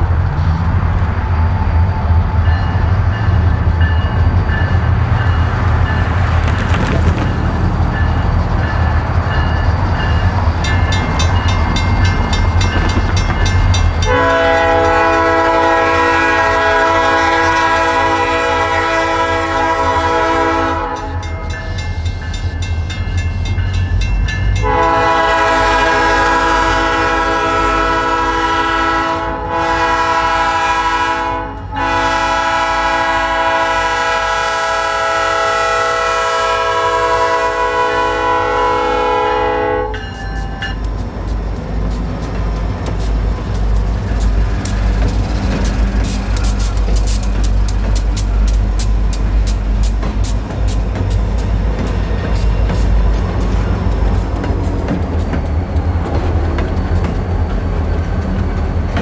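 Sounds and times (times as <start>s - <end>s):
train rumbling: 0.0s - 59.0s
locomotive air horn: 14.0s - 21.5s, 24.6s - 40.2s.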